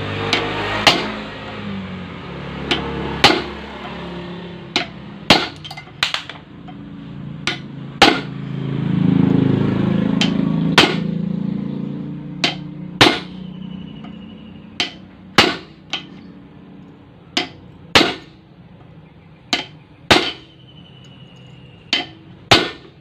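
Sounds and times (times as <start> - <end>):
hammer striking steel punch: 0.3 - 1.3, 2.7 - 3.6, 4.7 - 6.4, 7.4 - 8.4, 10.2 - 11.1, 12.4 - 13.4, 14.8 - 16.2, 17.3 - 18.4, 19.5 - 20.6, 21.9 - 23.0.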